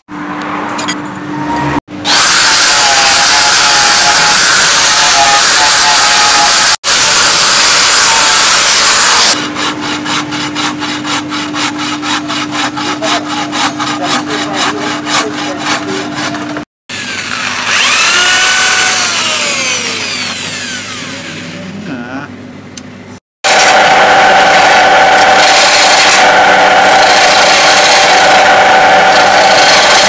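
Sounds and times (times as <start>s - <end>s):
angle grinder grinding steel: 1.6s - 21.7s, 23.5s - 30.0s
hacksaw cutting wood: 2.0s - 21.6s, 23.4s - 30.0s
power drill whining: 16.9s - 21.6s, 23.5s - 30.0s.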